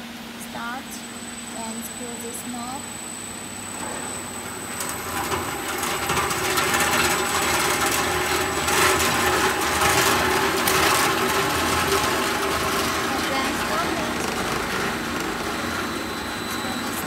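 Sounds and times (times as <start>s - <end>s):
mixer motor humming: 0.0s - 17.0s.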